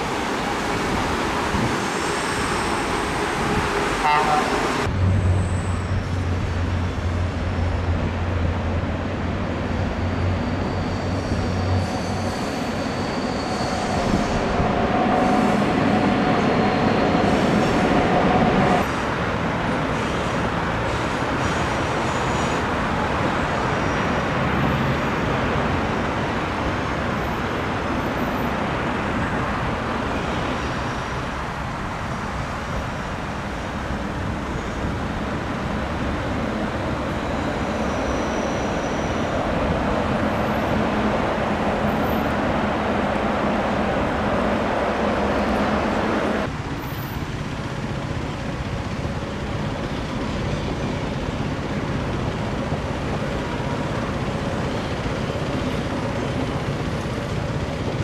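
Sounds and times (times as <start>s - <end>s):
electric train passing: 0.0s - 58.0s
train wheels rumbling on track: 0.0s - 58.0s.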